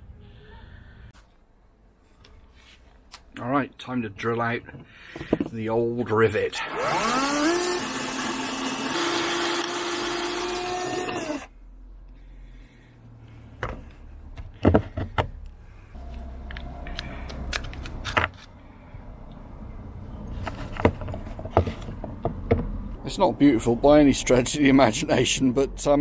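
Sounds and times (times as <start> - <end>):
power drill running: 6.6 - 11.5.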